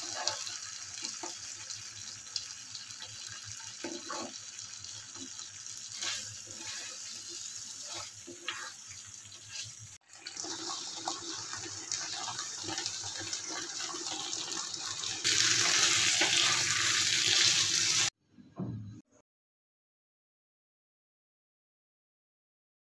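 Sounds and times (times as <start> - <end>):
chicken sizzling in frying pan: 0.0 - 18.1
wooden spatula stirring: 5.9 - 9.8.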